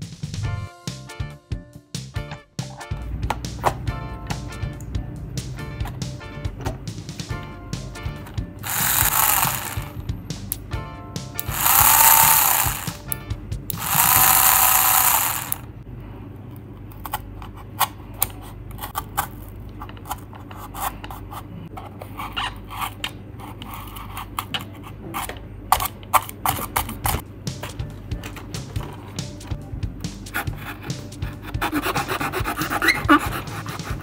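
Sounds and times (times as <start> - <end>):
small motors whirring: 8.6 - 10.0, 11.4 - 13.0, 13.8 - 15.6
knife cutting cardboard: 30.4 - 34.0.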